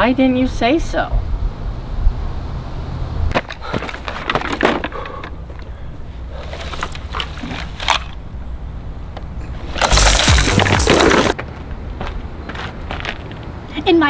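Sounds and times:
water blasters hissing: 0:09.8 - 0:11.4.

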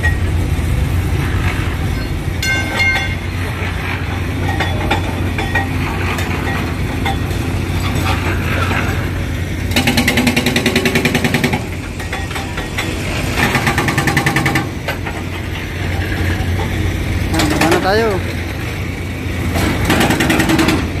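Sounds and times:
low engine hum: 0:00.0 - 0:21.0
concrete breaker hammering: 0:09.7 - 0:15.4, 0:16.0 - 0:18.2, 0:19.5 - 0:21.0.

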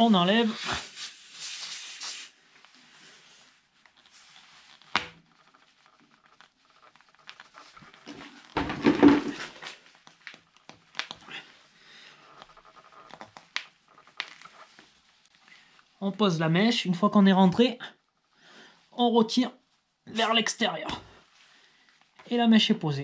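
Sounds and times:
small clicks and rubbing: 0:01.4 - 0:08.6, 0:09.5 - 0:15.8.

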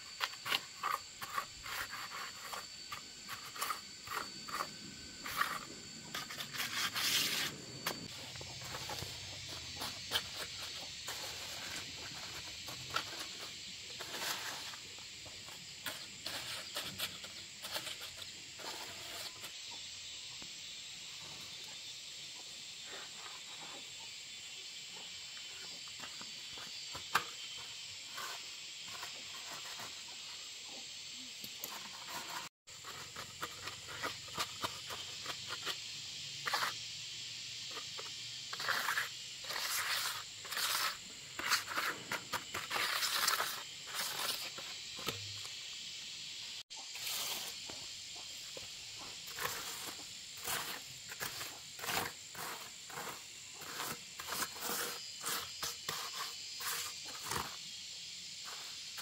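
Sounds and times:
scraping and knocking from handwork: 0:00.0 - 0:19.6, 0:31.4 - 0:36.8, 0:37.7 - 0:45.6, 0:46.8 - 0:57.6
crickets chirping: 0:00.0 - 0:59.0.

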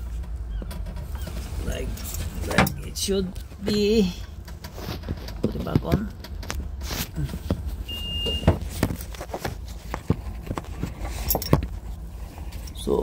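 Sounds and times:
low steady rumble: 0:00.0 - 0:13.0
parts clicking and knocking: 0:02.0 - 0:12.0
short high beep: 0:07.9 - 0:08.5.

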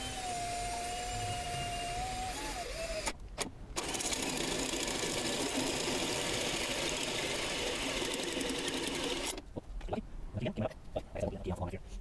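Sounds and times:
power drill cutting plastic pipe: 0:00.0 - 0:03.2, 0:03.8 - 0:09.4.

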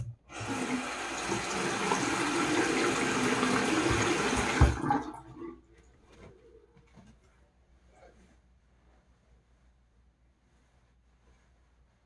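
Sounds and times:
tap running: 0:00.0 - 0:05.2.

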